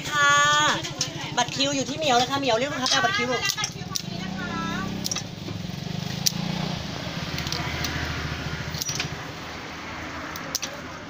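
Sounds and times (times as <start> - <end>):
low engine hum: 0.0 - 11.0
metal utensils clicking on bowls: 0.8 - 4.2, 4.8 - 6.4, 7.3 - 8.1, 8.7 - 9.3, 10.3 - 10.9.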